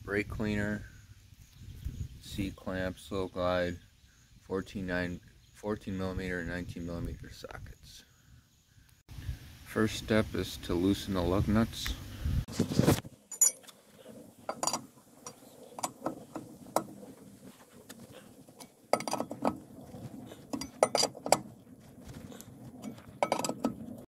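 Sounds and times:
lug wrench metallic clinks: 13.3 - 13.8, 14.5 - 16.9, 18.6 - 19.6, 20.5 - 21.5, 22.8 - 23.8.

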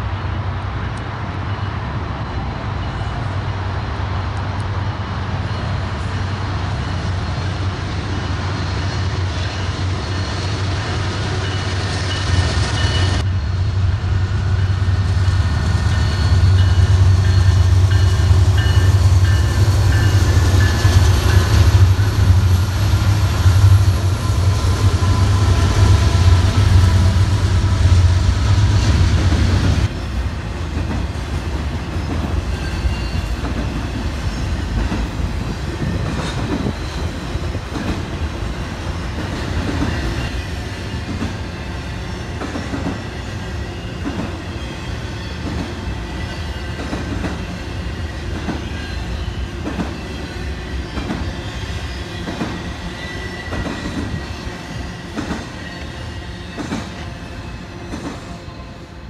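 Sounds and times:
diesel locomotive rumble: 0.0 - 44.4.

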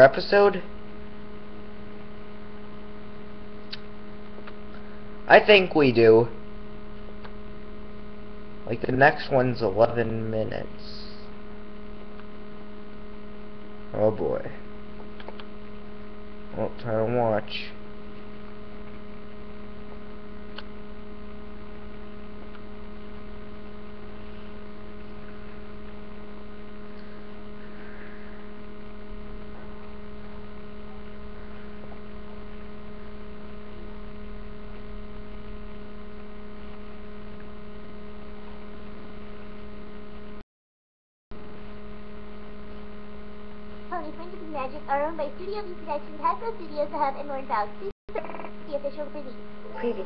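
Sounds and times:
electrical hum: 0.0 - 40.4, 41.3 - 50.0
person speaking: 5.3 - 6.4, 43.9 - 50.0.

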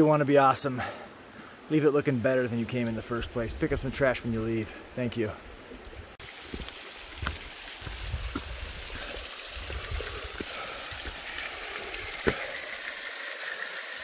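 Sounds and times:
waterfall rushing over rocks: 6.2 - 14.0.

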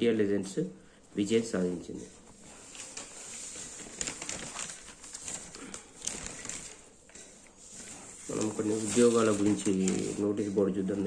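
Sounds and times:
newspaper pages rustling: 2.3 - 10.4.

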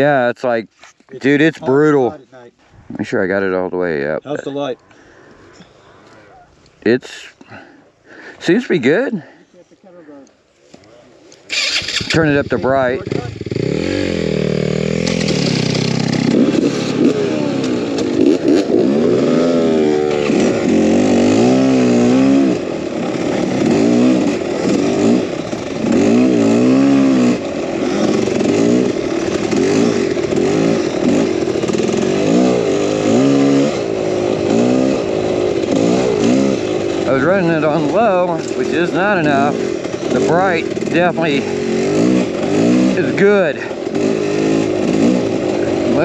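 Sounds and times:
dirt bike engine revving: 11.5 - 46.0.

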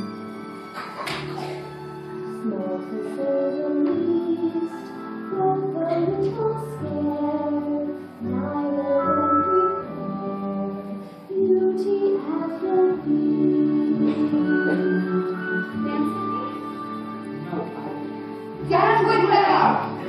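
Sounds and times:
musical accompaniment: 0.0 - 20.0
person singing ballad: 1.4 - 15.6.

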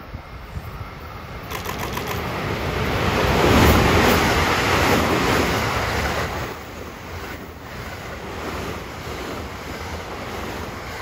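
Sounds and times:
electric train passing at speed: 0.0 - 11.0.

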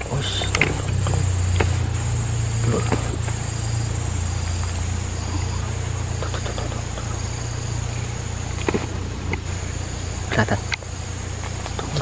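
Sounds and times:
high insect buzz: 0.0 - 12.0
low engine-like drone: 0.0 - 12.0
faint clicks: 4.4 - 9.6.

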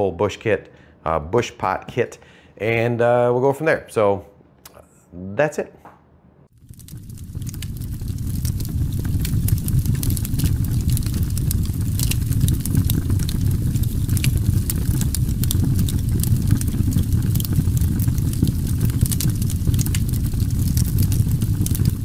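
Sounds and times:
sharp crackles and pops: 6.5 - 22.0
steady low rumble: 6.5 - 22.0.

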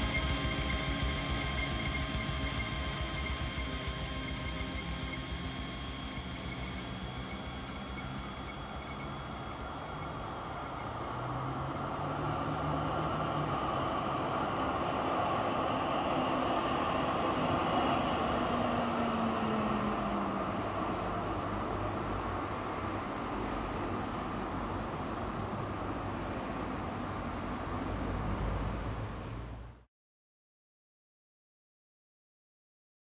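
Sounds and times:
low tone sliding downward: 0.0 - 24.1
dense noise roar: 0.0 - 29.8.

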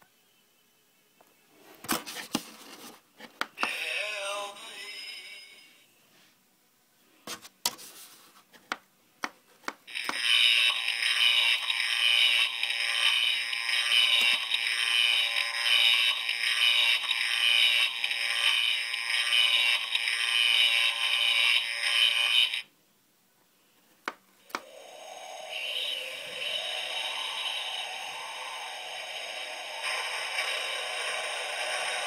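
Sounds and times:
spooky sound effect from small speaker: 3.6 - 5.8, 24.6 - 32.0
falling wavering tone: 24.6 - 32.0
loud pulsing hiss: 24.6 - 32.0.

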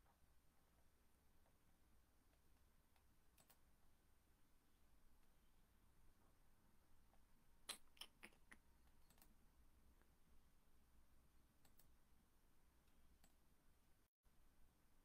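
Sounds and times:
faint low hum: 0.0 - 15.0
small sharp clicks: 3.0 - 3.7, 7.7 - 9.4, 11.6 - 12.0.

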